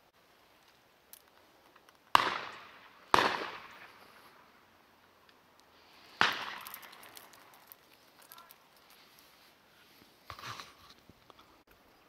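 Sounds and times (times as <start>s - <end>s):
shotgun shots echoing: 2.1s - 4.1s, 6.1s - 7.3s.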